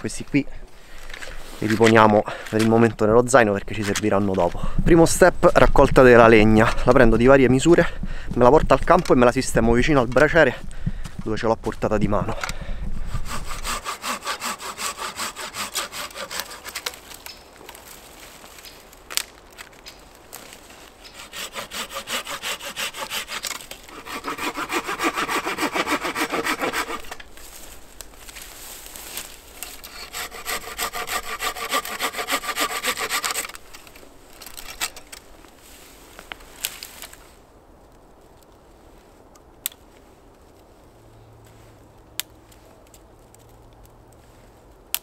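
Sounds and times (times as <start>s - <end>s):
hand saw rasping: 13.2s - 16.9s, 21.0s - 27.2s, 29.8s - 33.6s
branches snapping: 13.3s - 38.6s, 39.2s - 40.5s, 42.1s - 44.0s.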